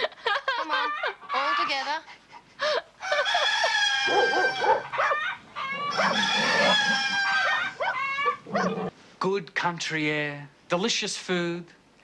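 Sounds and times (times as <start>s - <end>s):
chickens clucking: 3.0s - 8.9s
rooster crowing: 3.0s - 8.9s.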